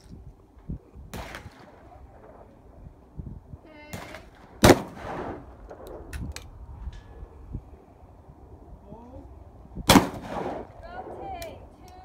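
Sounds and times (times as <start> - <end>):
shotgun shot with echo: 3.9 - 5.4, 9.9 - 10.7.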